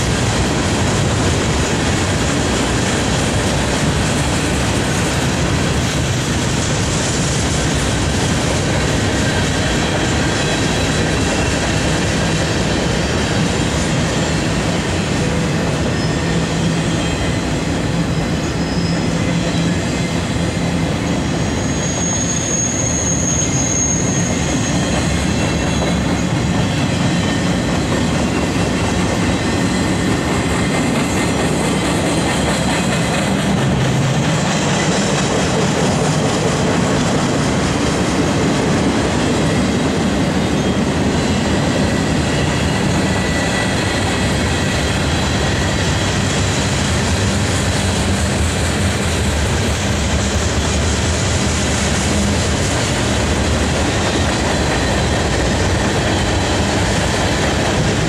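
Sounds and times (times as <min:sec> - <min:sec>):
freight train rolling past: 0:00.0 - 0:58.0
wheel squeal: 0:15.9 - 0:20.2, 0:21.0 - 0:27.6.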